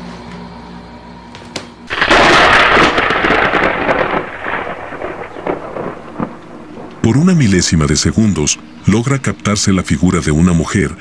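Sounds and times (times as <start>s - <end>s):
crackling and clicks: 1.9s - 8.8s
loud rumbling crash: 1.9s - 8.8s.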